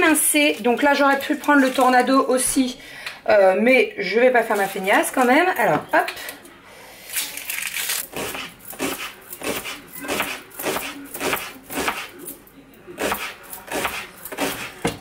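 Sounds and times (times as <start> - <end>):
knife slicing onion on board: 8.1 - 12.4, 13.0 - 15.0.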